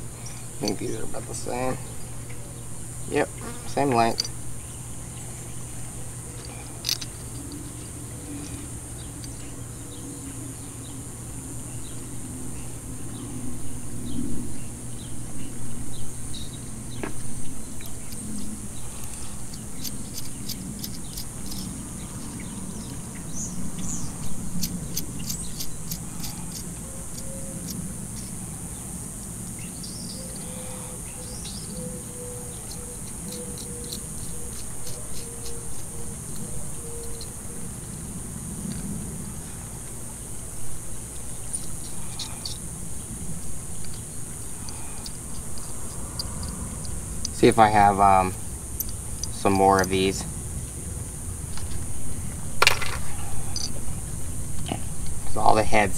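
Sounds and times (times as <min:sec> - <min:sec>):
outdoor background hiss: 0:00.0 - 0:55.9
small metal parts clinking: 0:03.8 - 0:04.4, 0:06.3 - 0:09.5, 0:17.8 - 0:28.5, 0:32.5 - 0:37.4, 0:41.4 - 0:50.2, 0:52.6 - 0:55.4.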